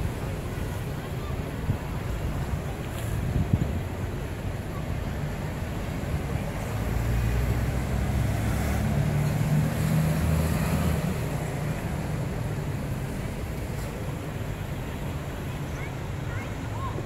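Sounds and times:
car driving past: 6.7s - 11.6s.

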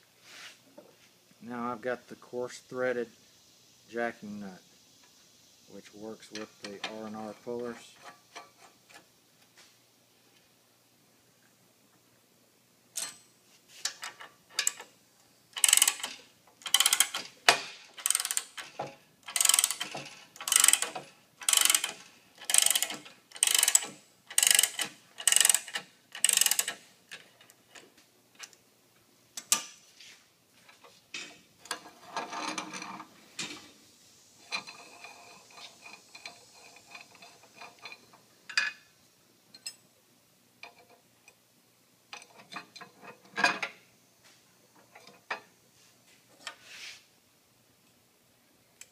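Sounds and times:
ratchet wrench clicking: 15.6s - 26.8s.

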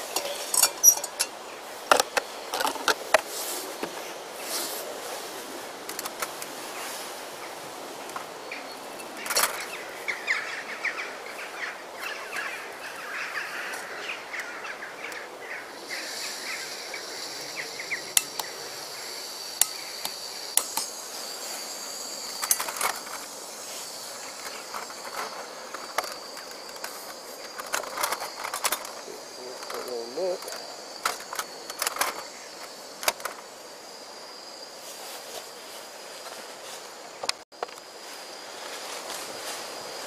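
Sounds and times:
metal pot clinks: 0.1s - 1.4s
burning gas hissing: 15.7s - 27.5s.

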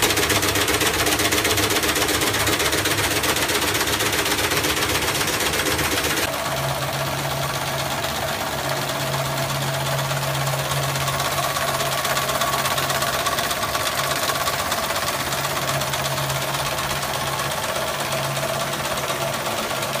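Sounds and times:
machinery clattering: 0.0s - 20.0s
steady machine whine: 0.0s - 20.0s.

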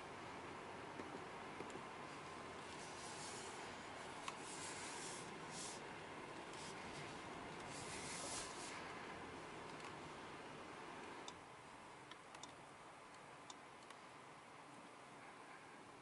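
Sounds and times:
road and tyre noise in car cabin: 0.0s - 16.0s
soft hissing rubs: 2.0s - 9.2s.

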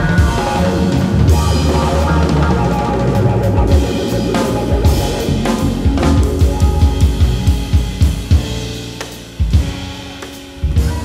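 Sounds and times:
upright acoustic bass: 0.0s - 8.4s
drum kit: 0.0s - 11.0s
keyboard: 0.0s - 11.0s.

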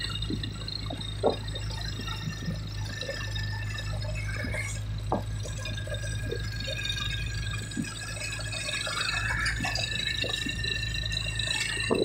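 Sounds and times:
faint high steady tones: 0.0s - 12.0s
road noise: 0.0s - 12.0s
vehicle engine running: 0.0s - 12.0s.

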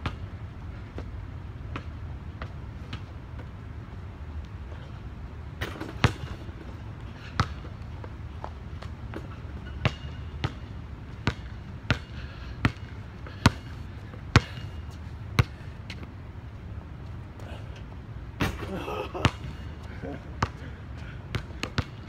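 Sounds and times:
basketball bouncing: 5.6s - 7.8s, 8.4s - 16.1s, 18.4s - 20.7s, 21.3s - 22.0s.

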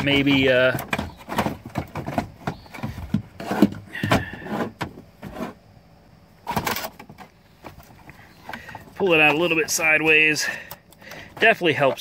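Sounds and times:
plastic scraping on plastic: 0.0s - 5.6s, 6.4s - 9.8s.

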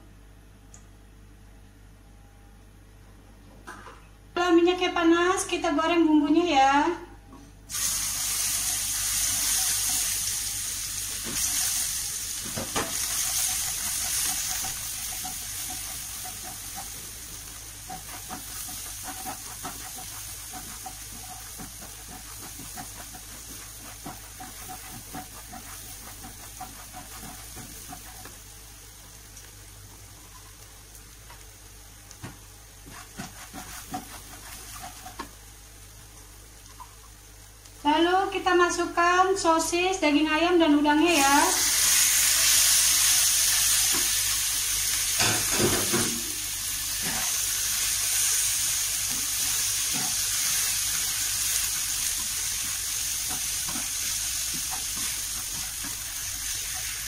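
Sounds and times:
paste sizzling in hot oil: 7.7s - 29.8s, 32.1s - 35.7s, 41.2s - 57.0s
spatula scraping and tapping wok: 8.6s - 10.2s, 11.2s - 28.4s, 32.2s - 35.4s, 45.2s - 57.0s.

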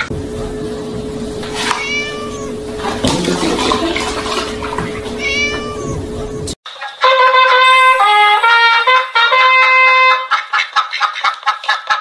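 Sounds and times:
steady hum: 0.0s - 6.6s, 7.7s - 10.1s
kitten meowing: 1.7s - 2.6s, 5.2s - 6.0s
milk pouring into plastic tub: 2.8s - 5.0s.

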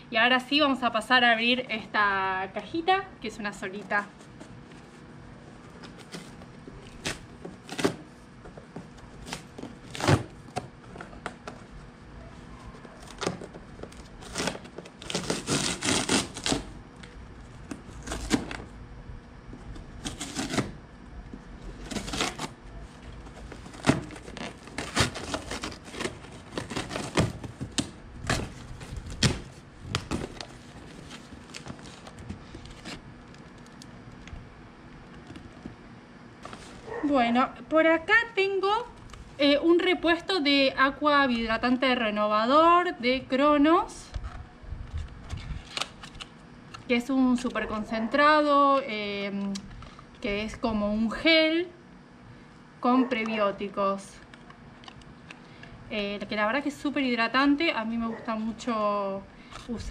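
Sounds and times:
cardboard box being torn open: 9.2s - 10.4s, 13.0s - 16.8s, 17.7s - 18.7s, 20.0s - 20.8s, 21.8s - 22.6s, 23.4s - 33.0s.

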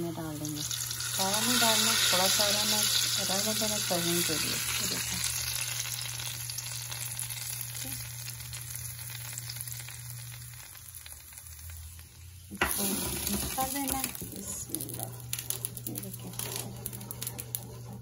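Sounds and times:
onions sizzling in hot fat: 0.0s - 18.0s
wooden spoon stirring thick food: 16.0s - 18.0s.

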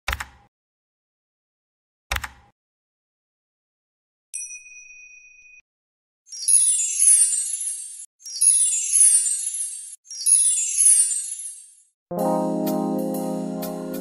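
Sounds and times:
glittering chime with sparkly sweeps: 6.3s - 11.9s.

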